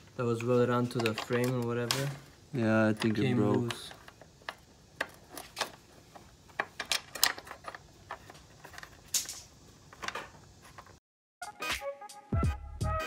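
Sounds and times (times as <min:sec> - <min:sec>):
metallic bolt clicks and rattles: 0:06.6 - 0:10.2.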